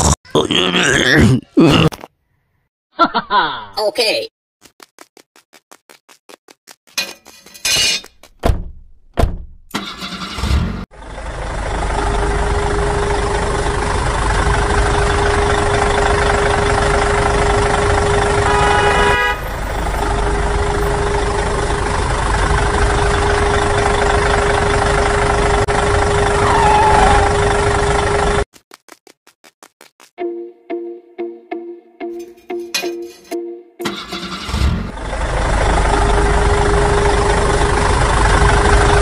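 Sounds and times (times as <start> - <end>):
tractor engine running: 8.3 - 28.5, 32.3 - 39.0
short horn toot: 18.4 - 19.6.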